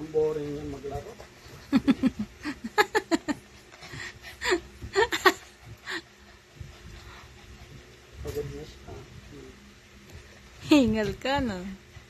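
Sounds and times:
person laughing: 4.4s - 5.5s.

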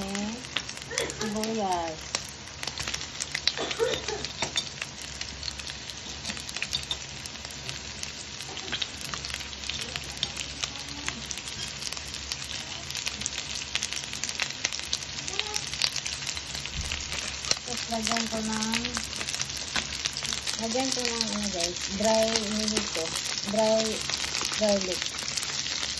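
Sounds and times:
chicken and onion sizzling in oil: 0.0s - 25.9s
small crackling pops: 12.5s - 25.9s.

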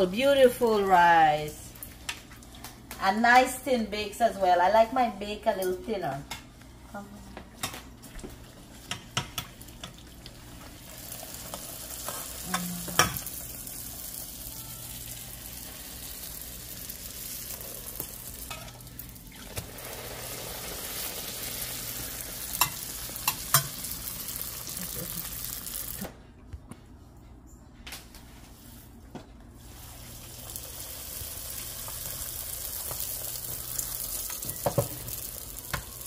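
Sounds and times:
dough sizzling in oil: 8.7s - 26.1s, 29.6s - 36.0s
metal utensil clicking on pan: 22.6s - 23.8s.

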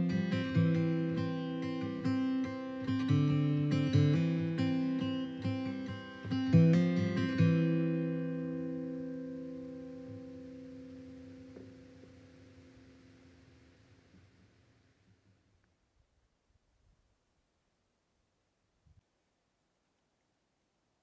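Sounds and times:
acoustic guitar music: 0.0s - 14.6s.

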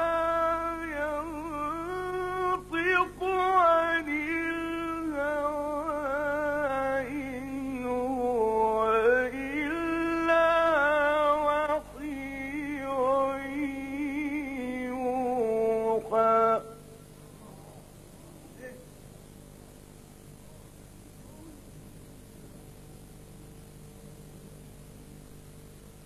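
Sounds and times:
man reciting melodically: 0.0s - 16.9s.

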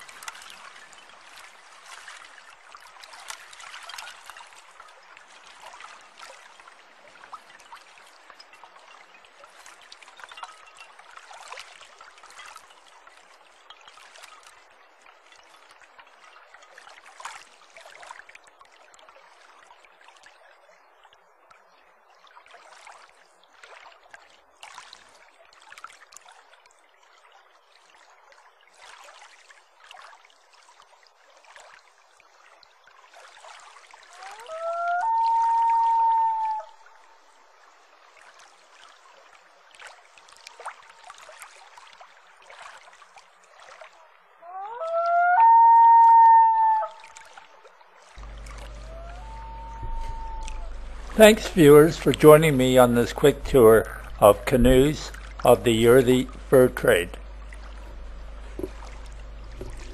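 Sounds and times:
stream babbling: 0.0s - 13.6s, 46.9s - 59.9s.

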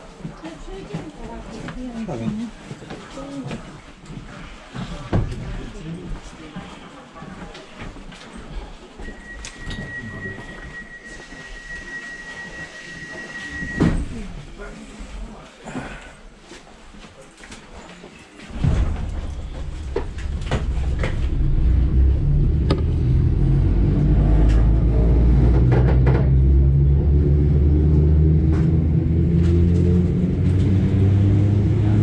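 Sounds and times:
electric train traction rumble: 18.5s - 32.0s.

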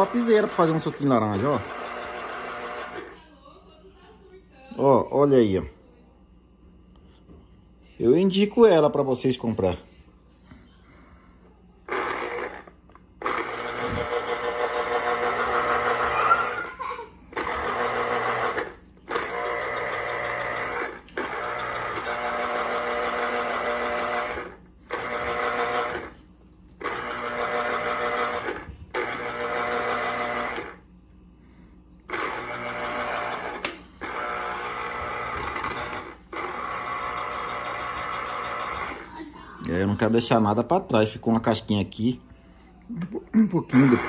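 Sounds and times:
electric citrus juicer motor: 0.0s - 3.2s, 11.8s - 31.0s, 32.0s - 40.0s, 43.7s - 44.0s.

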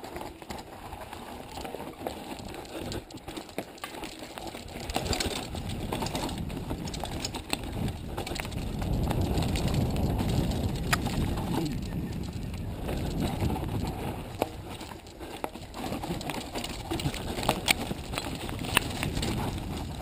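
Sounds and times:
tyres crunching on gravel: 0.0s - 20.0s
bike rattling clicks: 0.1s - 20.0s
low rumble: 8.5s - 14.8s.

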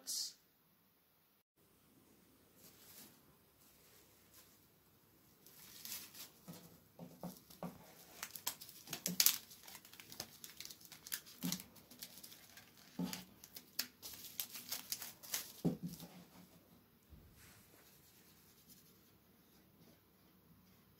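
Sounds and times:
cling film crinkling: 5.4s - 6.5s, 7.3s - 16.0s.

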